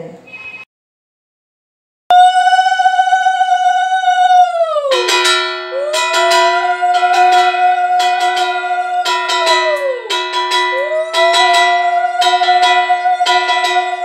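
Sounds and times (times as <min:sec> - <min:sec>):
conch shells blown: 0:02.1 - 0:14.0
hand bell ringing: 0:04.9 - 0:14.0.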